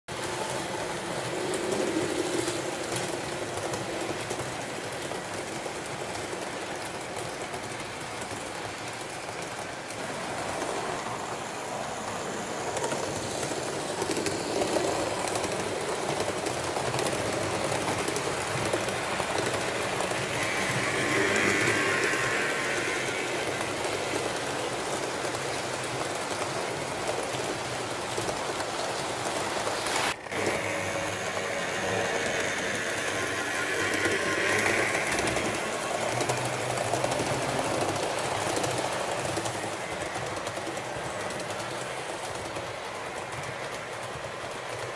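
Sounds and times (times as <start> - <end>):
model train wheels rattling: 0.1 - 44.9
locomotive motors humming: 10.0 - 27.0, 30.1 - 43.6.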